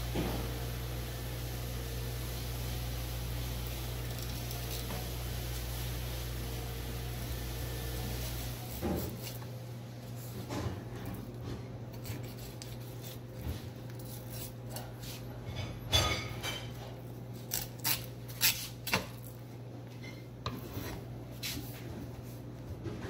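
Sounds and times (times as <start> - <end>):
knife cutting along fish backbone: 11.9 - 15.2.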